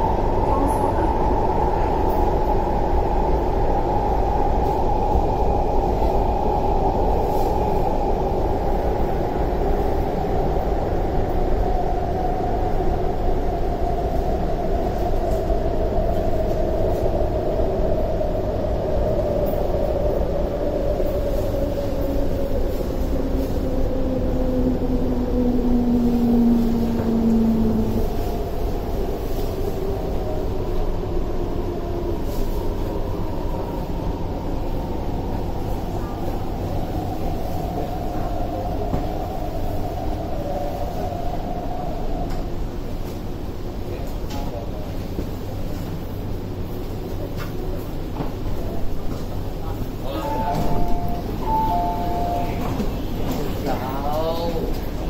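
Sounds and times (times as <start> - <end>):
wheels rumbling on rail: 0.0 - 55.0
low sliding tone: 48.5 - 54.2.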